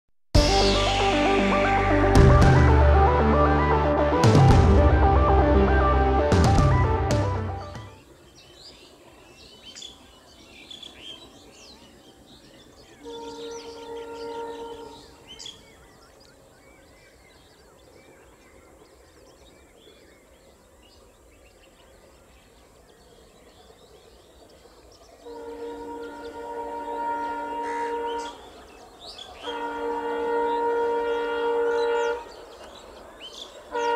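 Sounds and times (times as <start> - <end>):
locomotive horn: 0.4 - 8.0, 13.0 - 15.4, 25.2 - 28.7, 29.4 - 32.5, 33.6 - 33.9
birds chirping: 4.8 - 33.9.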